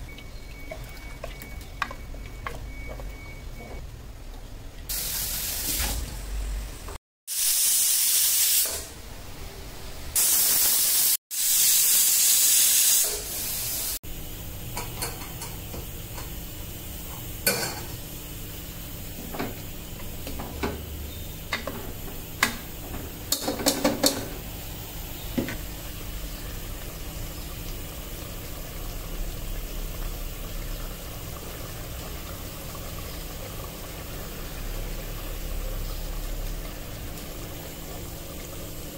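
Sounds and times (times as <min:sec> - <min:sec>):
pressure cooker whistling steam hiss: 0:07.3 - 0:08.9, 0:10.2 - 0:14.0.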